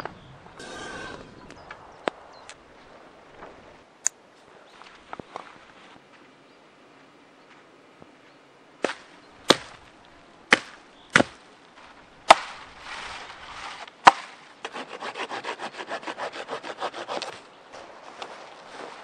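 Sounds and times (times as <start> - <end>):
dry branches snapping: 8.8 - 14.8
rasping of wood: 12.3 - 17.4.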